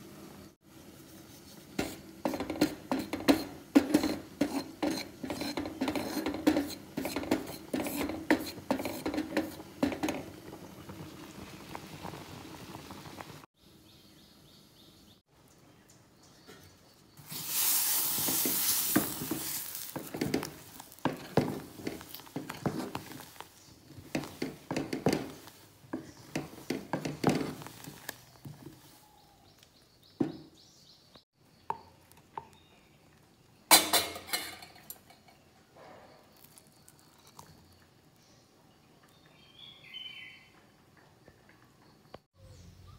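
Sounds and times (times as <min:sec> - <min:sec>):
ladle scraping a metal pot: 0:01.6 - 0:10.5, 0:17.2 - 0:28.7, 0:33.7 - 0:35.4
brief hiss: 0:17.2 - 0:19.8.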